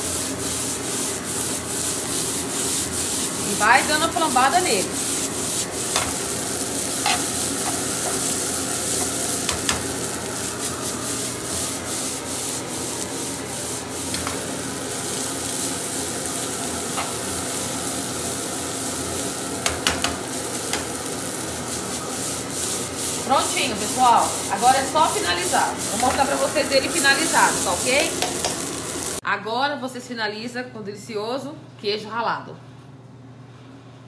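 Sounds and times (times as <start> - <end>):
pasta sizzling in a pan: 0.0 - 29.2
metal tongs scraping a pan: 7.0 - 8.4.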